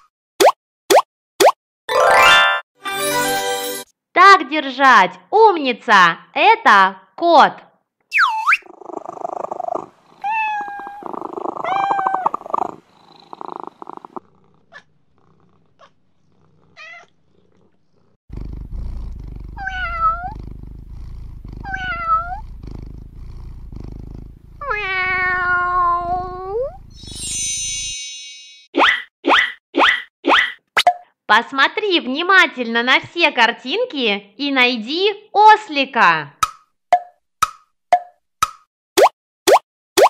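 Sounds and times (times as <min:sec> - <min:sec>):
cat purring: 0:08.6 - 0:27.0
cat meowing: 0:10.1 - 0:12.6, 0:16.8 - 0:17.1, 0:19.6 - 0:20.4, 0:21.6 - 0:22.5, 0:24.6 - 0:26.8.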